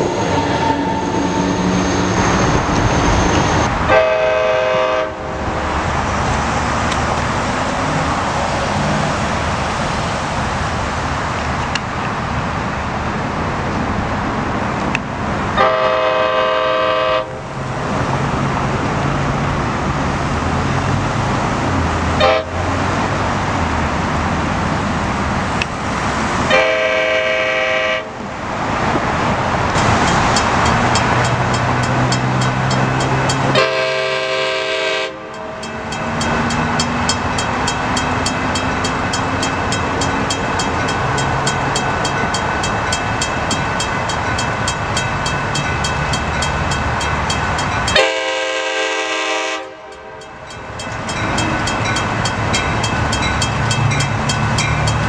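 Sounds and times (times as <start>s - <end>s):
moving train noise: 0.0s - 55.0s
train horn blowing: 0.1s - 1.7s, 3.9s - 5.5s, 15.6s - 17.5s, 22.2s - 22.6s, 26.5s - 28.2s, 33.5s - 35.7s, 47.9s - 50.3s.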